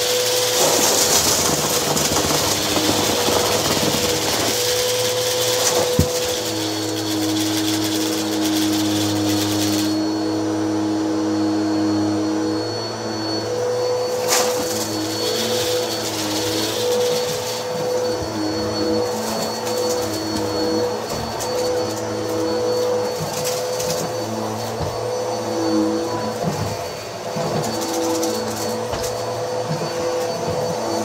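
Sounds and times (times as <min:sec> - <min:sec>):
sharp crackle: 0:00.0 - 0:10.0
vacuum cleaner running on carpet: 0:00.0 - 0:31.0.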